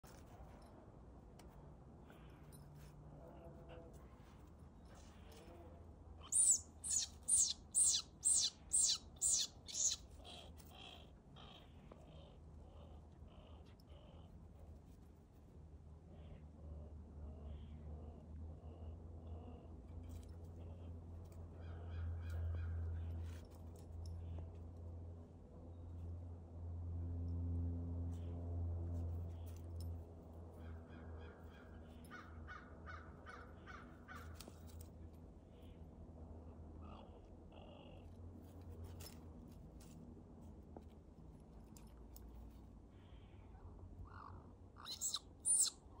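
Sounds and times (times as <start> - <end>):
high squealing animal calls: 6.2 - 10.4, 44.8 - 45.8.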